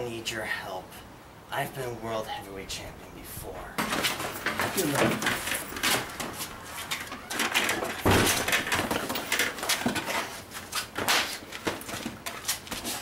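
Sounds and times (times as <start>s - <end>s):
shuffling and clatter: 3.8s - 13.0s
body falling with heavy thud: 7.8s - 10.0s.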